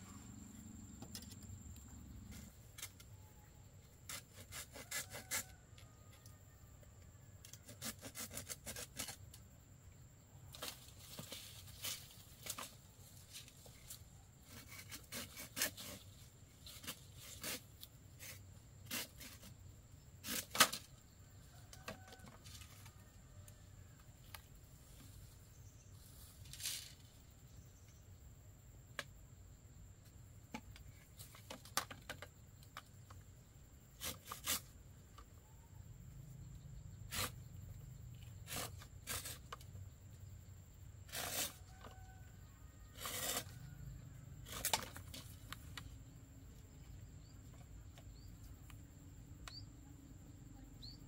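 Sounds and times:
knife cutting bamboo: 4.0s - 5.6s, 7.5s - 9.4s, 13.8s - 19.6s, 20.2s - 20.9s, 33.9s - 34.8s, 37.1s - 37.4s, 38.2s - 39.7s, 41.0s - 42.0s, 42.9s - 43.6s, 44.4s - 45.8s.

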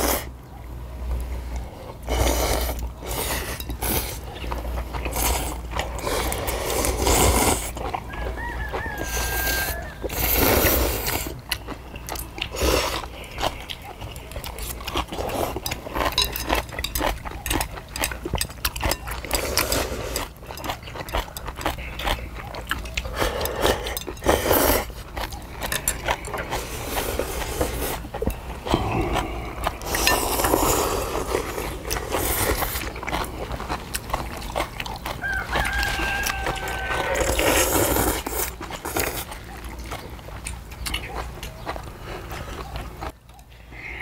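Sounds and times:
chewing and slurping noodles: 0.0s - 44.0s
rooster crowing: 7.8s - 10.4s, 35.1s - 37.7s
chopsticks clicking on metal plates: 15.6s - 21.7s.

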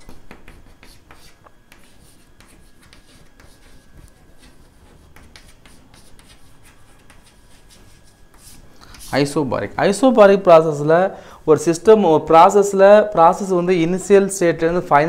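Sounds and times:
chalk scratching on chalkboard: 0.0s - 9.4s.

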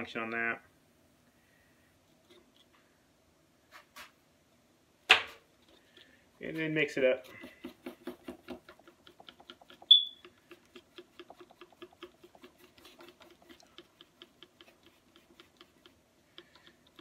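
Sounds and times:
stick scraping in a cup: 9.6s - 17.0s.

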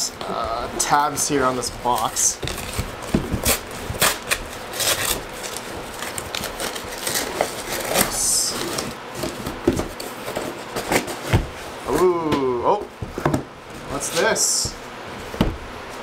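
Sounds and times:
cardboard box ripping: 1.6s - 9.4s.

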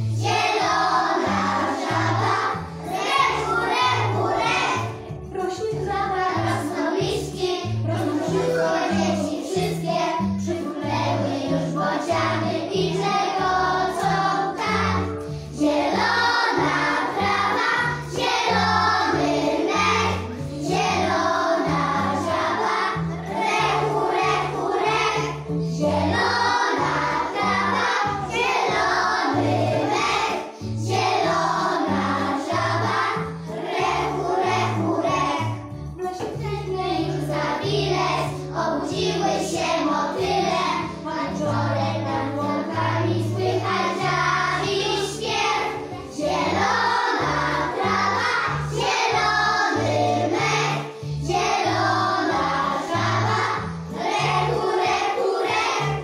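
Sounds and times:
children singing in unison: 0.0s - 5.0s, 5.9s - 35.6s, 36.7s - 56.0s
backing music with bass line: 46.6s - 50.8s.

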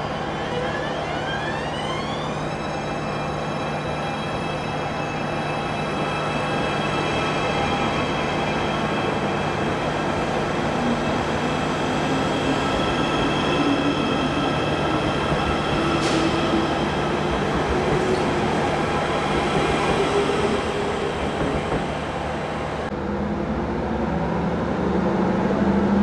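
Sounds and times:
train wheels on rails: 6.4s - 22.9s.

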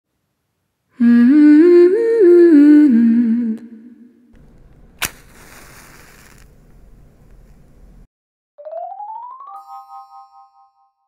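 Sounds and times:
woman humming: 1.0s - 4.2s.

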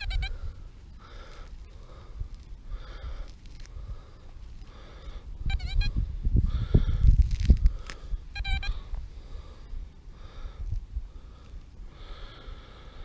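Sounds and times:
soil rustling and knocking: 7.0s - 8.0s
metal detector warbling beep: 8.4s - 8.8s.

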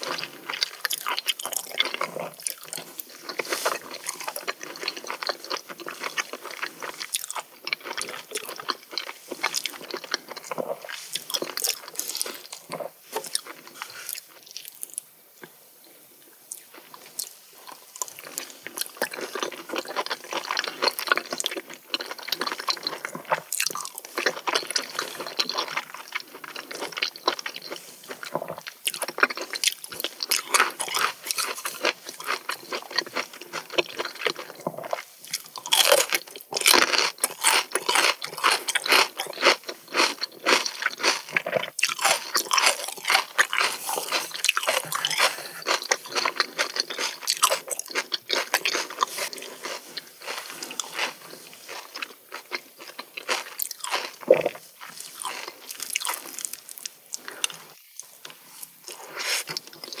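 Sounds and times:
close chewing mouth clicks: 16.5s - 58.4s.

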